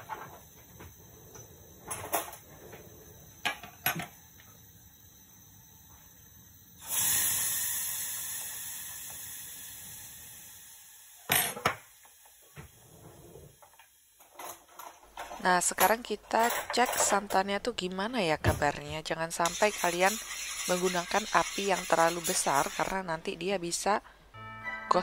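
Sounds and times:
sudden hiss: 6.8s - 11.3s.

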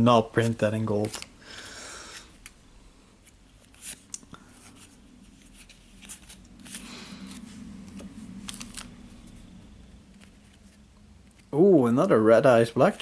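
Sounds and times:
cards rustling: 0.4s - 1.4s, 3.2s - 11.6s.

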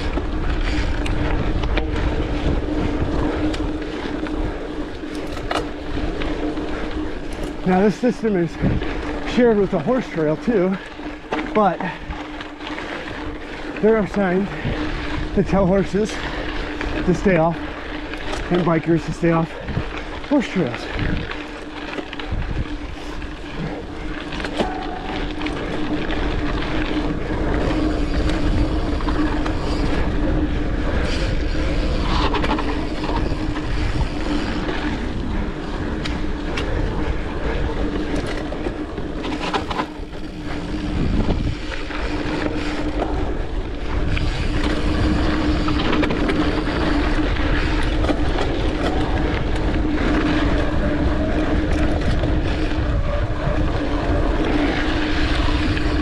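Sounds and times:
bike knocks and rattles: 0.0s - 6.5s, 21.9s - 30.1s
bike tyres rolling on dirt: 0.0s - 56.0s.

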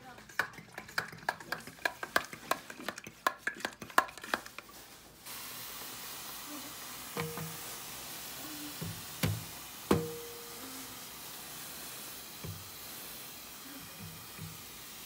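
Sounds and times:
spray bottle misting hiss: 4.2s - 15.0s.

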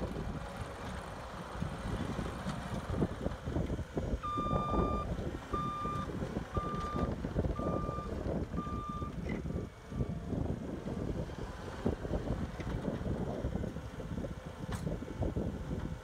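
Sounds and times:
diesel engine running: 0.0s - 16.0s
backup alarm beeping: 4.2s - 9.1s.

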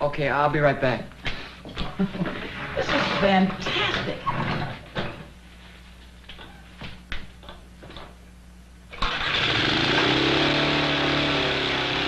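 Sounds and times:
lawnmower engine running: 8.9s - 12.0s.

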